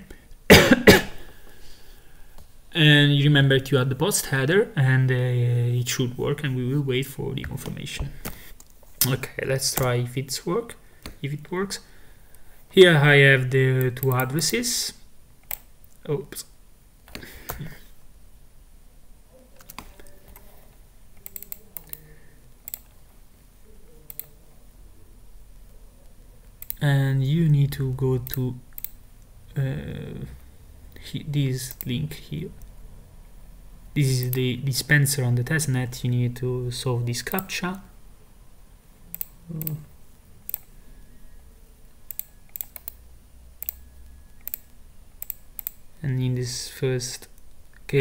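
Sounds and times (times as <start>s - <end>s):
computer keyboard clicking: 19.6s - 20.5s, 21.2s - 22.0s, 22.6s - 22.9s, 42.1s - 43.0s, 43.6s - 43.8s, 44.4s - 45.8s.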